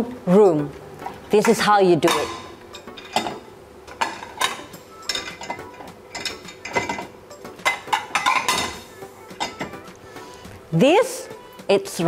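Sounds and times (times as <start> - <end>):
plates clinking in dishwasher rack: 1.4 - 9.8.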